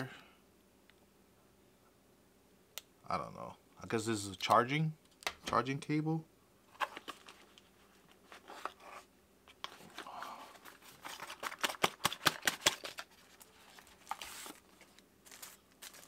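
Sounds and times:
paper rustling: 0:06.7 - 0:16.0
packaging crackling and snapping: 0:10.0 - 0:16.0.

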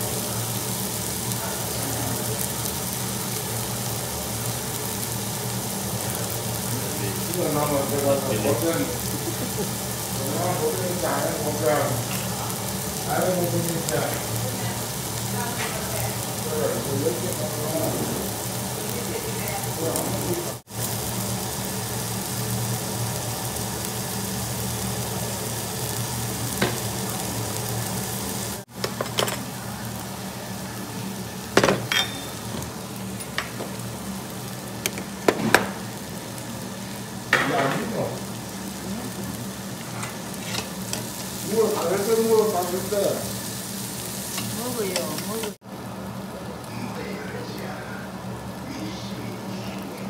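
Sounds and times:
meat sizzling on grill plate: 0:00.0 - 0:50.0
metal tongs clicking on grill: 0:40.0 - 0:41.3.

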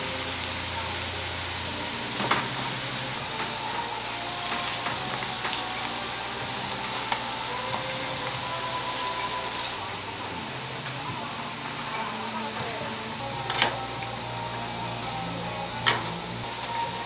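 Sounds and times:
tofu sizzling in oil: 0:00.0 - 0:09.8.

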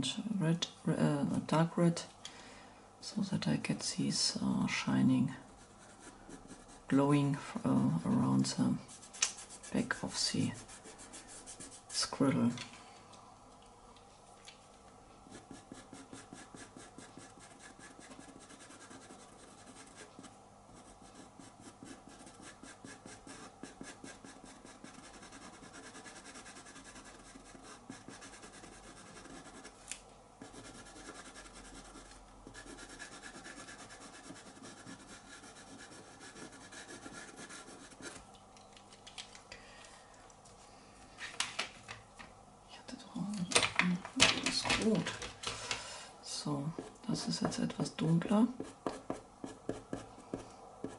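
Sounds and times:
pastel pencil scratching paper: 0:05.6 - 0:07.0, 0:07.7 - 0:12.1, 0:15.2 - 0:29.8, 0:30.4 - 0:38.2, 0:48.5 - 0:50.9.

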